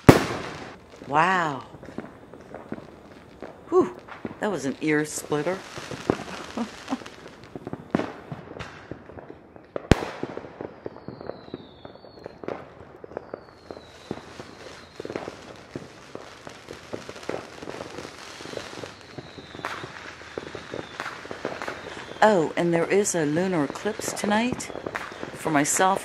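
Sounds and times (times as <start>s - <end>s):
falling firework whistles: 0.0s - 0.8s, 5.2s - 9.0s, 9.8s - 22.3s, 23.2s - 25.4s
fireworks popping and banging: 0.0s - 26.0s
loud sharp firecracker crack: 0.0s - 26.0s.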